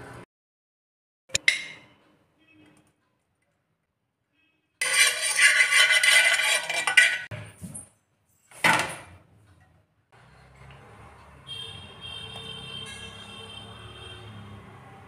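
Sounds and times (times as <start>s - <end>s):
metal spoon scraping pan: 4.8s - 7.4s.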